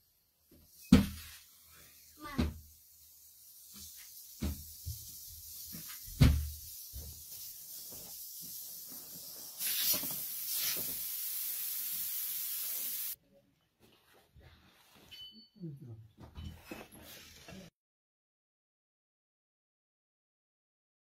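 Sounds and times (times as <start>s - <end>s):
steady hiss: 0.0s - 13.2s.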